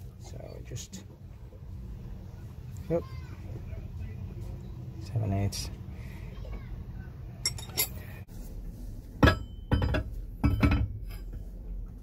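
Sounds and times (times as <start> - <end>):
metal pump clinking against engine: 7.4 - 8.1, 9.2 - 11.4.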